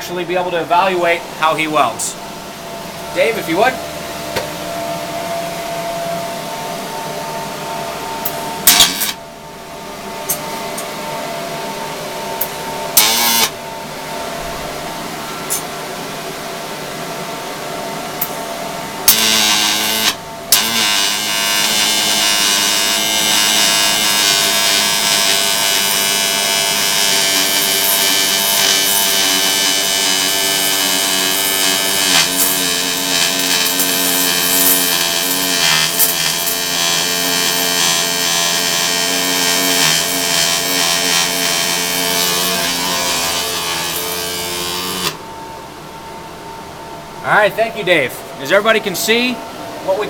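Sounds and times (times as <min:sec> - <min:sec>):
workshop hum: 0:00.0 - 0:50.0
welding arc crackling: 0:08.2 - 0:09.2, 0:12.4 - 0:13.6, 0:19.0 - 0:45.2.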